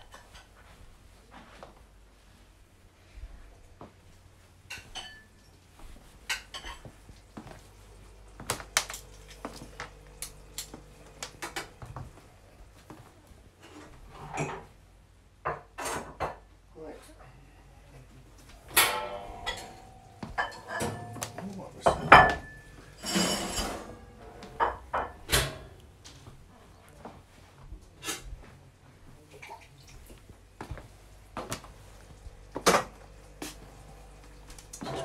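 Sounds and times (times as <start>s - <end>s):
plates and cutlery clinking: 4.7s - 5.6s, 6.2s - 7.0s, 18.7s - 25.6s, 34.8s - 35.0s.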